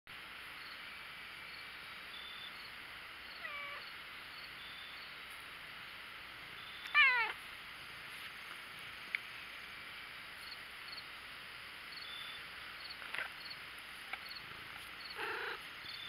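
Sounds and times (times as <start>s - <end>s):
cat meowing: 3.4s - 3.8s, 6.9s - 7.4s, 15.2s - 15.7s.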